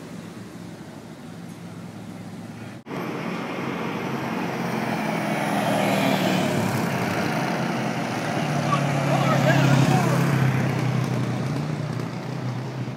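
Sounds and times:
atv engine driving past: 3.2s - 12.9s.

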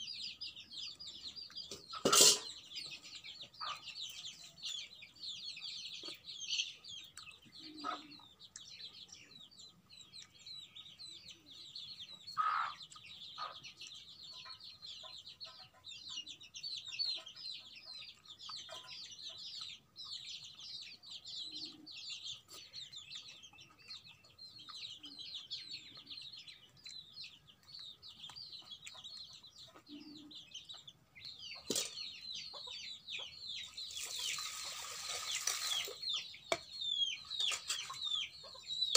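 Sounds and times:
chicks peeping: 0.0s - 38.9s
hen clucking: 1.2s - 4.9s, 6.0s - 9.2s, 12.1s - 20.0s, 21.4s - 38.9s
water splashing into metal pot: 33.9s - 36.6s.

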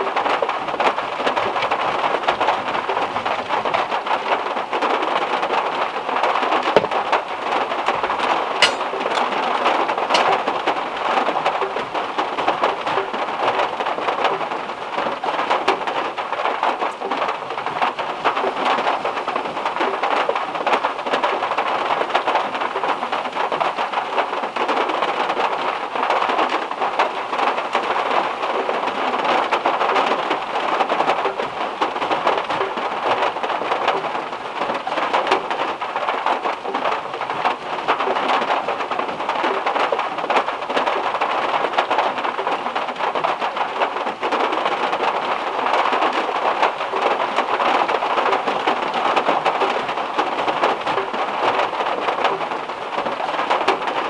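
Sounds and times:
heavy rain on a metal roof: 0.0s - 54.0s.

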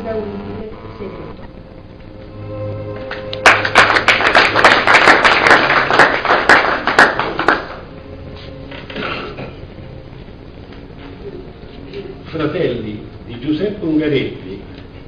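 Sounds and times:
people applauding: 3.0s - 7.9s.

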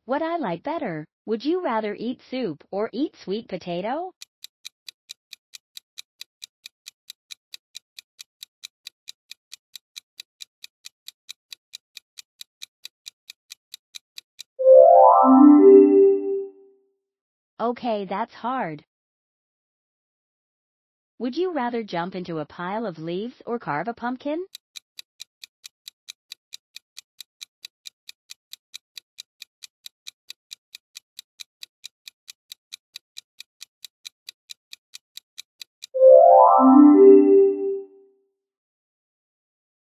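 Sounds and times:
rapid clock ticking: 4.1s - 14.5s, 24.5s - 35.9s.

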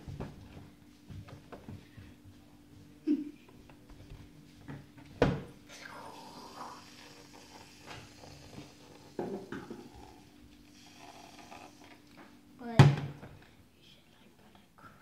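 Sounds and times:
knocks on a tabletop: 9.2s - 9.8s, 12.8s - 13.2s.

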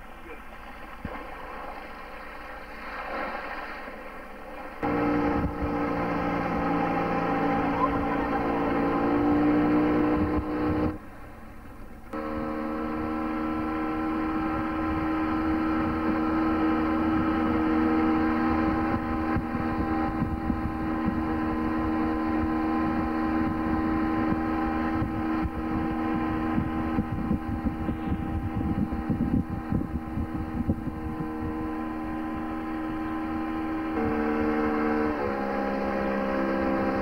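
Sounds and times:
outboard motor running: 0.0s - 37.0s.

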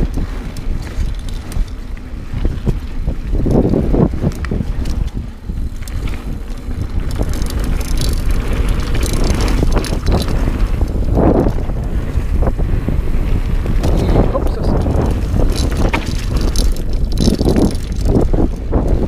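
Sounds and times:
bike clicks and rattles: 0.0s - 19.0s
tyres on gravel trail: 0.0s - 19.0s
wind rumble on microphone: 0.0s - 19.0s.

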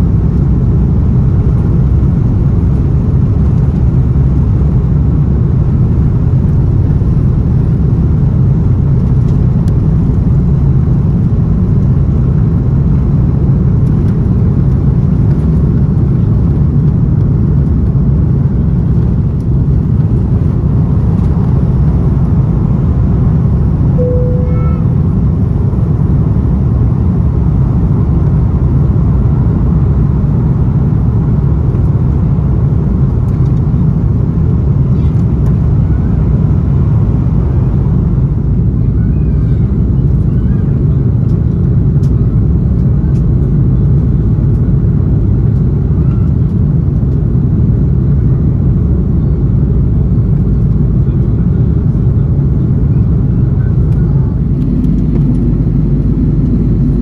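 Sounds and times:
jet engines roaring in cabin: 0.0s - 57.0s.

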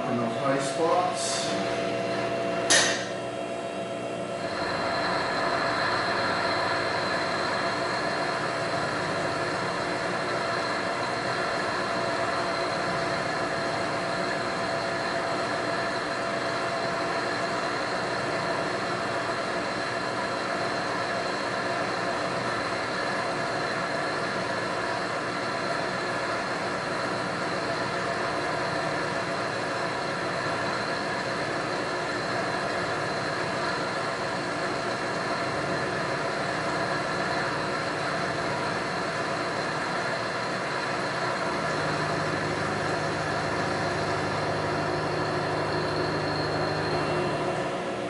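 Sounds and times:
high steady whine: 0.0s - 48.0s
milling machine cutting steel: 27.8s - 47.8s.

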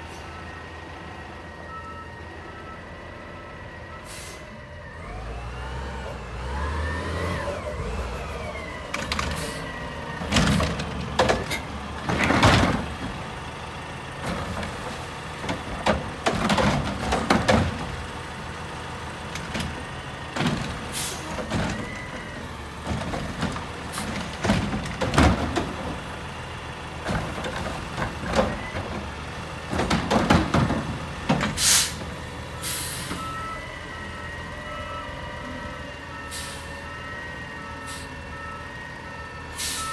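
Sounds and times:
air brake hiss: 4.0s - 4.6s, 20.9s - 21.3s, 31.6s - 32.0s, 32.6s - 33.2s, 36.3s - 36.8s, 37.9s - 38.2s, 39.6s - 39.9s
truck engine revving: 4.9s - 21.5s
loud clanks of carts and steel: 7.5s - 13.5s, 14.1s - 18.3s, 19.2s - 33.4s.

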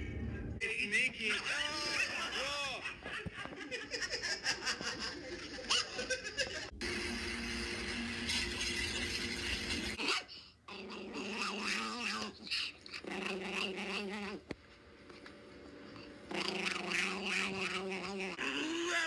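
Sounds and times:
small dog growling: 10.0s - 14.5s, 15.9s - 19.0s.

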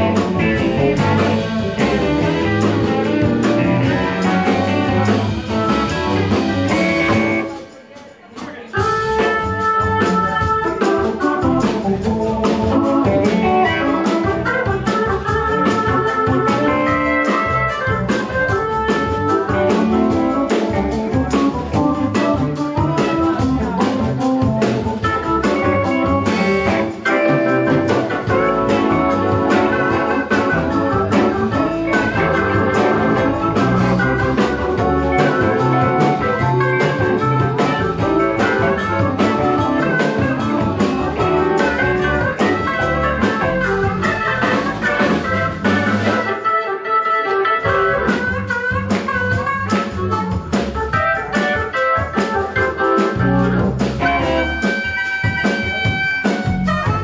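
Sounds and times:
blues band playing: 0.0s - 57.0s.

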